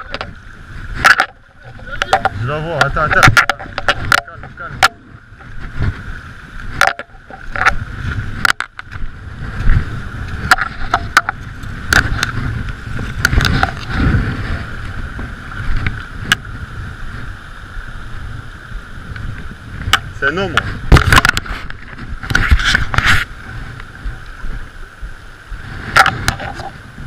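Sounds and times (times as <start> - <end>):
river current rushing: 0.0 - 27.0
clicks and knocks of handling: 1.0 - 5.6, 6.7 - 7.8, 8.4 - 9.1, 19.9 - 23.2.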